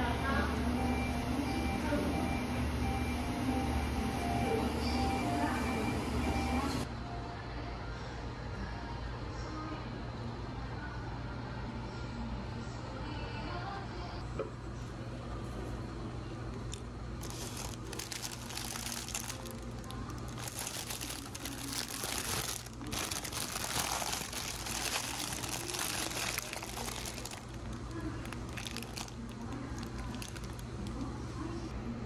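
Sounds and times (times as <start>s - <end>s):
paper wrapper crinkling: 17.2s - 31.1s.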